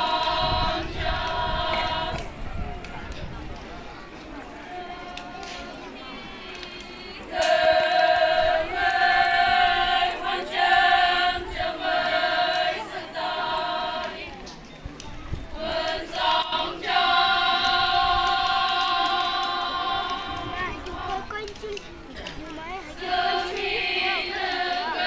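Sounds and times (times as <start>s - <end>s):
women chanting in unison: 0.0s - 2.4s, 4.8s - 14.4s, 15.6s - 21.3s, 22.9s - 25.0s.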